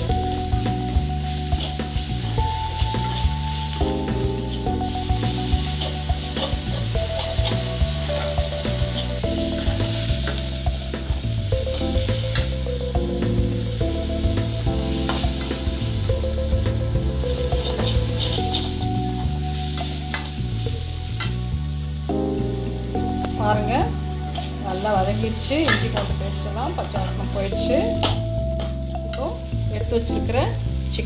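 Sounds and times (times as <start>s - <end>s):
onions sizzling in oil: 0.0s - 31.0s
slow melodic background music: 0.0s - 31.0s
metal spatula scraping pan: 4.5s - 11.1s, 17.3s - 18.9s, 23.8s - 29.2s.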